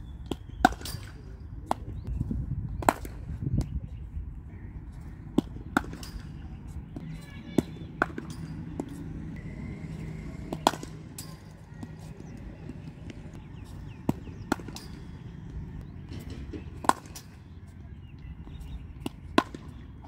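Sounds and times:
cricket ball hitting bat: 0:10.4 - 0:12.0, 0:14.0 - 0:17.4.

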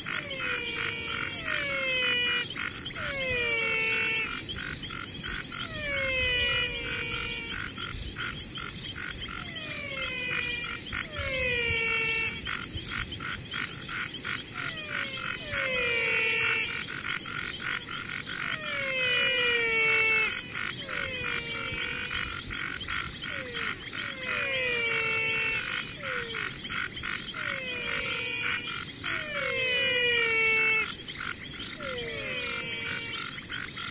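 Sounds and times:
falling whistle-like calls: 0:00.0 - 0:08.4, 0:09.0 - 0:13.0, 0:14.5 - 0:16.8, 0:18.4 - 0:26.5, 0:27.3 - 0:31.0, 0:31.7 - 0:33.9
high insect-like drone: 0:00.0 - 0:33.9
rapid pulsing chirps: 0:00.0 - 0:33.9.

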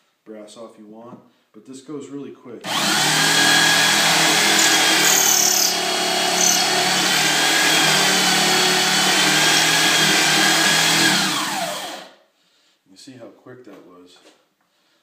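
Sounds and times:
cutter shaving brass: 0:02.7 - 0:12.1
electric drill running: 0:02.7 - 0:12.2.

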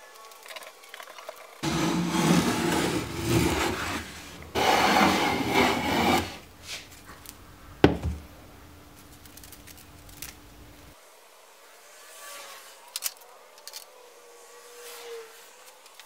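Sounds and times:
hand plane shaving wood: 0:01.6 - 0:06.4.

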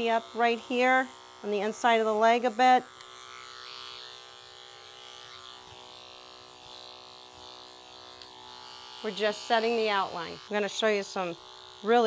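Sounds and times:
electric clippers running: 0:00.0 - 0:12.0.

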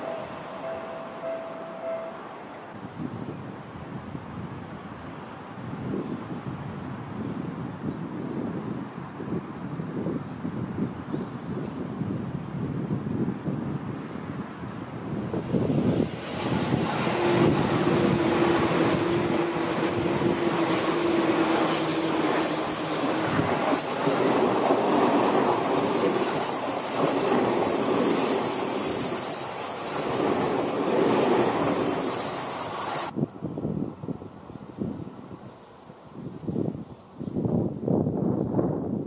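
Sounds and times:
steady tone: 0:00.0 - 0:02.8
electric train passing at speed: 0:00.0 - 0:03.9, 0:13.4 - 0:34.2.

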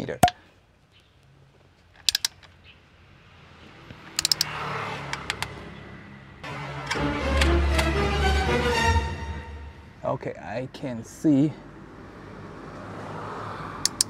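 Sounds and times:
torque wrench clicks: 0:04.2 - 0:04.5.

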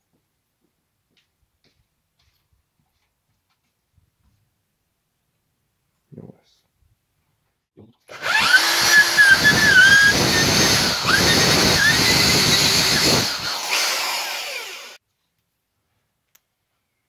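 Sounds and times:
electric drill boring into wood: 0:08.1 - 0:15.0
high squeal from drill bit: 0:08.1 - 0:15.0.

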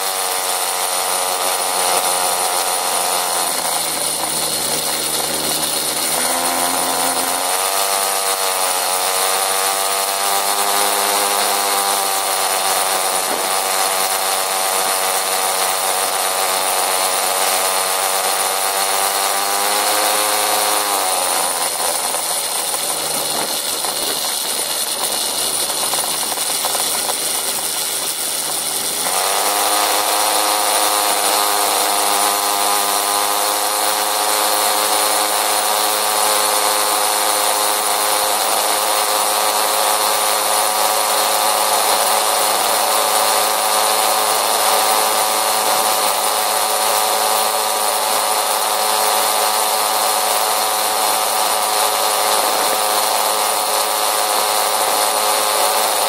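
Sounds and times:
small motorcycle engine revving: 0:00.0 - 0:56.0.

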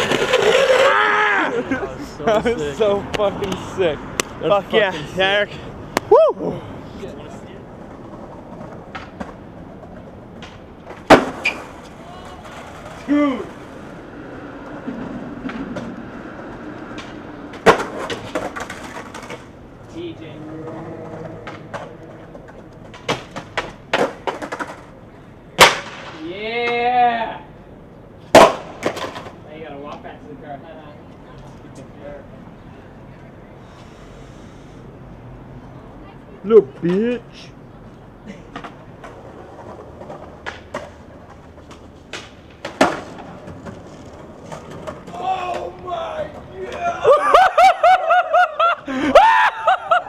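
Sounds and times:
skateboard wheels clacking: 0:00.0 - 0:01.5, 0:07.2 - 0:26.8, 0:28.3 - 0:29.4, 0:38.4 - 0:47.1
skateboard slapping ground: 0:00.0 - 0:06.2, 0:07.0 - 0:26.8, 0:28.2 - 0:30.1, 0:38.3 - 0:50.0.

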